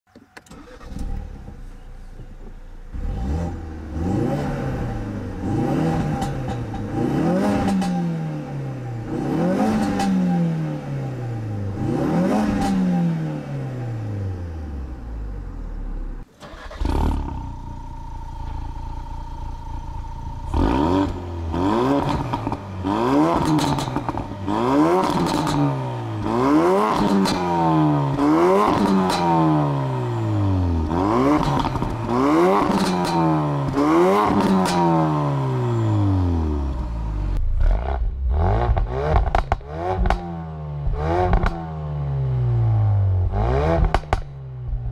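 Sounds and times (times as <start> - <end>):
car engine idling: 0.1 - 4.1, 13.9 - 26.4
car engine revving: 0.5 - 1.8, 2.8 - 44.9.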